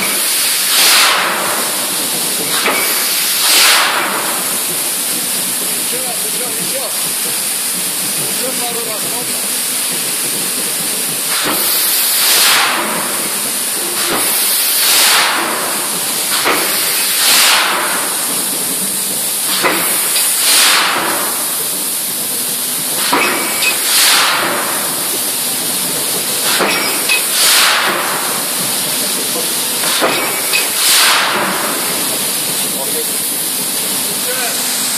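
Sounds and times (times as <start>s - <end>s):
steady loud hiss: 0.0s - 34.9s
short burst of hiss: 0.1s - 4.5s, 11.3s - 17.9s, 29.9s - 31.9s.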